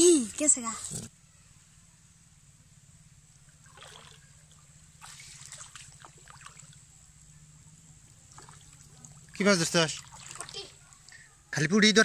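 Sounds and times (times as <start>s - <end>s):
splashing of pond water: 3.4s - 11.3s.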